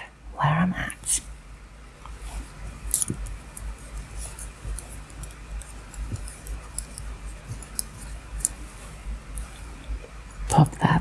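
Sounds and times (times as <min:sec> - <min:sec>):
wooden knitting needles clicking: 0:02.9 - 0:08.6.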